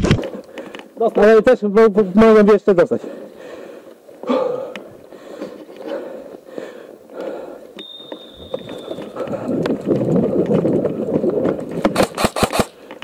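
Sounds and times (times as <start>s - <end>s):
footsteps running over grass: 8.2s - 12.0s
gear rattling: 8.3s - 12.7s
airsoft rifle shots: 11.9s - 12.8s.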